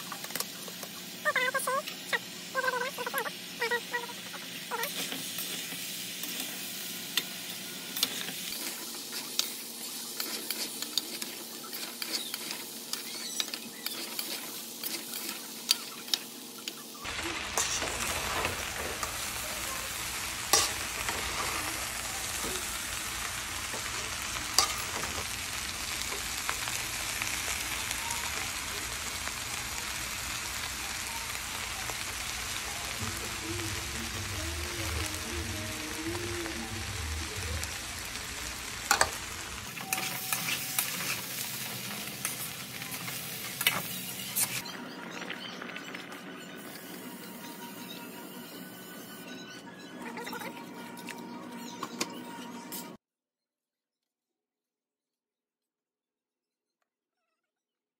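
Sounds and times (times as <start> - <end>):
food sizzling in a pan: 0.0 - 44.7.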